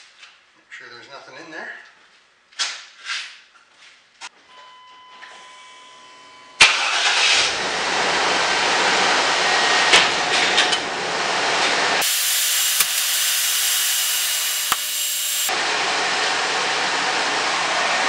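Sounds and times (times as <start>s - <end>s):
truck engine cranking and starting: 6.6s - 9.0s, 12.0s - 15.5s.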